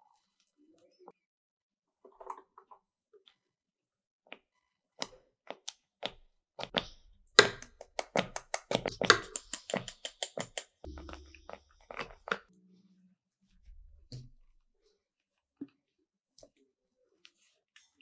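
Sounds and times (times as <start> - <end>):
utensils tapping and knocking: 7.4 - 11.4.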